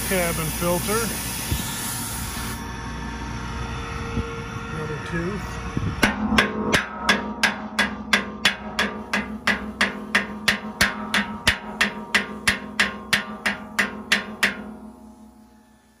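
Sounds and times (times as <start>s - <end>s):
hammer striking steel disc: 6.0s - 15.8s.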